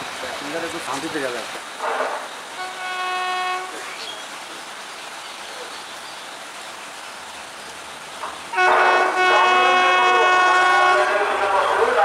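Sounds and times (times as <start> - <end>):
train horn blast: 1.8 - 3.9, 8.5 - 12.0.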